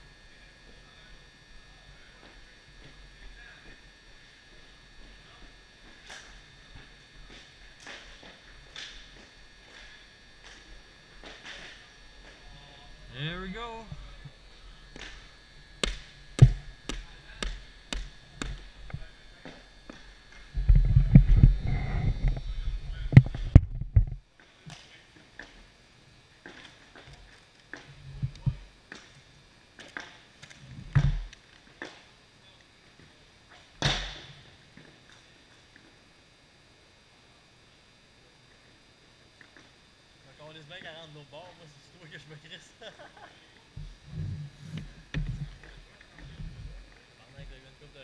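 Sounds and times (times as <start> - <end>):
sharp crack echoing in arena: 15.8 - 18.6, 33.8 - 34.3.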